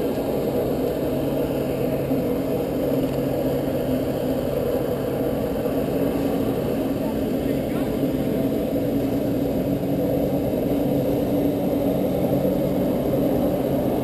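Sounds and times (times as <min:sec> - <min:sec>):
jet ski engine humming: 0:00.0 - 0:14.0.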